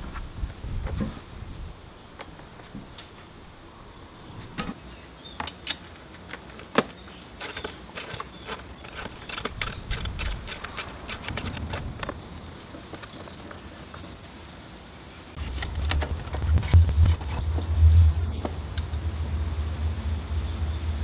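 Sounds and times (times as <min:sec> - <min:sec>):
hand tools clicking and clanking: 0:05.4 - 0:14.2
low rumble: 0:15.4 - 0:21.0.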